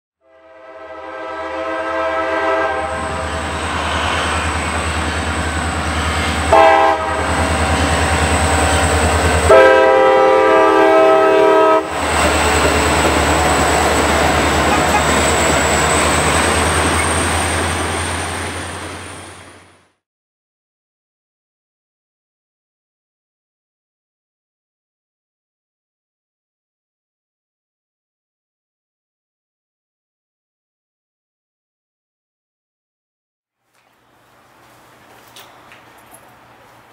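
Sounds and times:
train air horn blasts: 0.2s - 4.1s, 6.2s - 17.2s
train wheels rolling: 3.0s - 9.6s, 11.6s - 19.8s, 34.4s - 36.9s
diesel engines rumbling: 11.7s - 19.9s.

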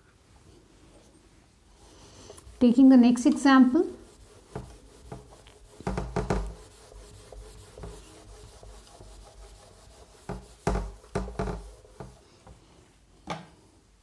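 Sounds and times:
duster rubbing on whiteboard: 1.7s - 12.7s.

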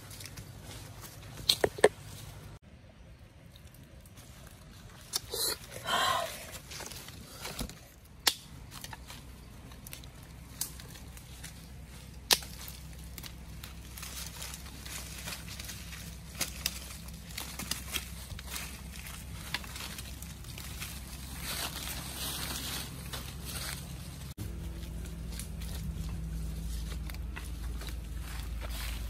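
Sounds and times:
footsteps on dry leaves: 0.0s - 1.4s, 8.6s - 29.0s
sticks snapping and clicking: 8.2s - 9.0s, 9.7s - 11.2s, 12.1s - 13.4s
loud rustle: 13.6s - 29.0s.

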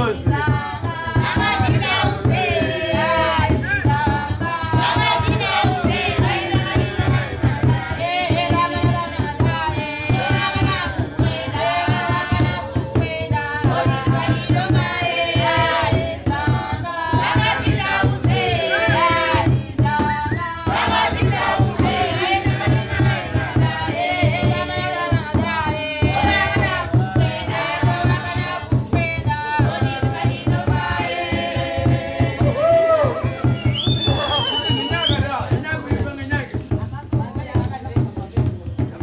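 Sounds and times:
women singing together: 0.0s - 35.1s
steady low drum beat: 0.0s - 39.0s.

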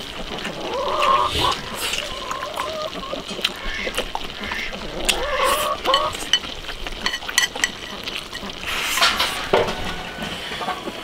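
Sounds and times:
people eating mouth sounds: 0.3s - 6.8s.

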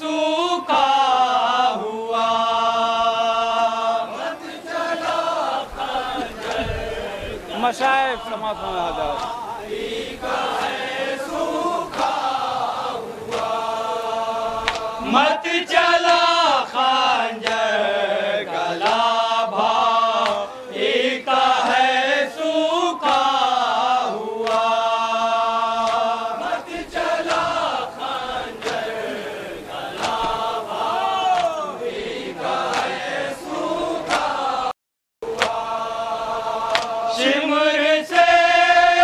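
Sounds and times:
men chanting in unison: 0.0s - 39.0s
chest-beating slaps: 9.1s - 9.4s, 14.6s - 14.9s, 20.2s - 20.5s, 24.4s - 24.8s, 25.8s - 26.1s, 30.0s - 30.4s, 32.7s - 33.0s, 34.0s - 34.4s, 35.4s - 35.6s, 36.7s - 37.0s.

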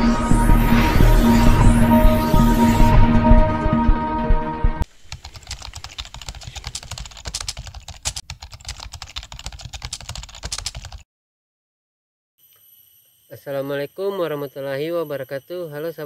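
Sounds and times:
intro music: 0.0s - 4.8s
keyboard typing clicks: 5.1s - 11.0s.

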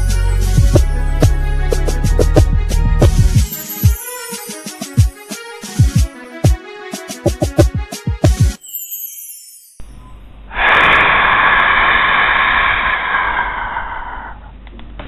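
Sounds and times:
backing music: 0.0s - 9.3s.

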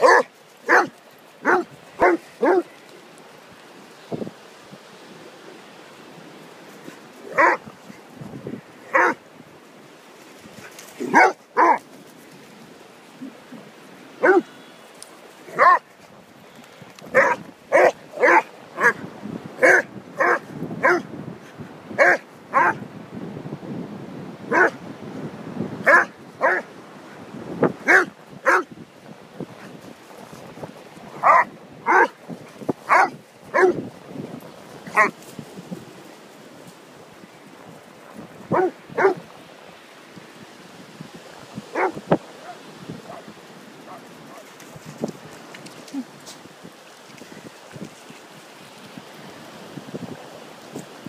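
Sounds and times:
dog barking: 0.0s - 2.7s, 7.3s - 7.6s, 8.9s - 9.2s, 11.0s - 11.8s, 14.2s - 14.5s, 15.5s - 15.8s, 17.2s - 19.0s, 19.6s - 21.0s, 22.0s - 22.8s, 24.5s - 24.8s, 25.8s - 26.7s, 27.9s - 28.7s, 31.2s - 32.2s, 32.9s - 33.8s, 38.5s - 39.2s, 41.7s - 43.2s.

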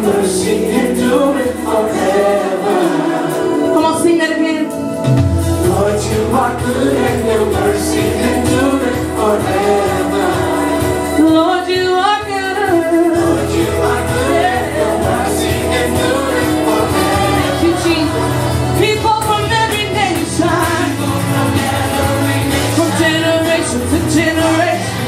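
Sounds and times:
instrumental accompaniment: 0.0s - 25.0s
woman singing into a microphone: 6.0s - 21.6s, 22.7s - 25.0s.

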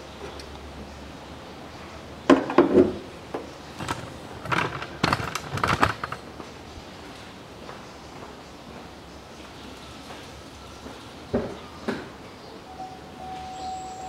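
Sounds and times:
sharp knocks and clattering: 2.3s - 6.5s.

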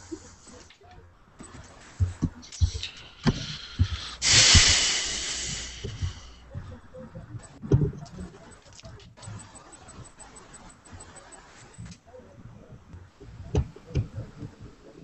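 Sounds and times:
soft thumps and clicks: 0.8s - 4.7s
loud hiss: 3.5s - 6.4s.

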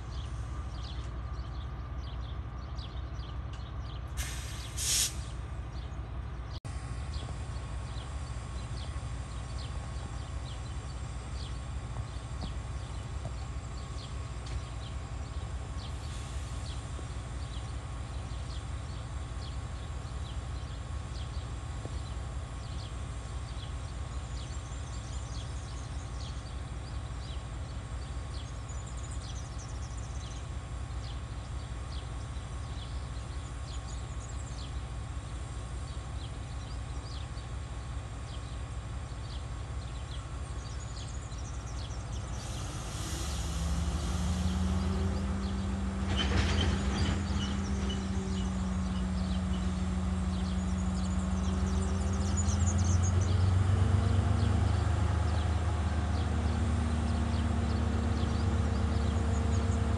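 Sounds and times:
diesel locomotive engine rumbling: 0.0s - 59.9s
air hiss: 4.2s - 5.4s, 42.3s - 44.6s.

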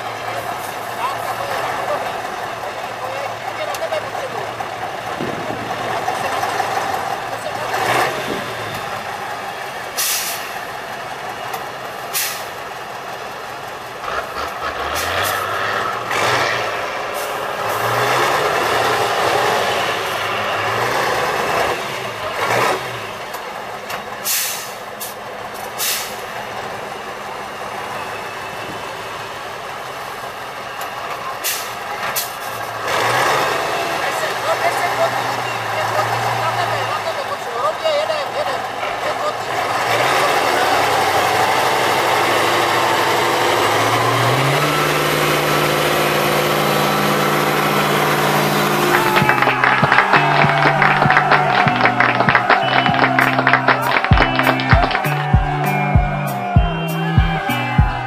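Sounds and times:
truck diesel engine under load: 0.0s - 58.0s
air brake hisses: 10.0s - 10.6s, 12.1s - 12.5s, 24.2s - 25.2s, 25.8s - 26.2s, 31.4s - 32.5s.

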